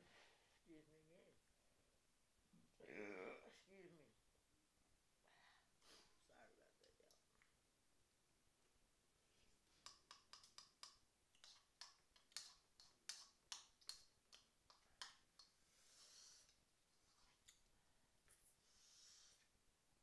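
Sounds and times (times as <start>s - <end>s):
soft hiss: 0.0s - 20.0s
chewing and cutlery clicks: 9.9s - 15.2s.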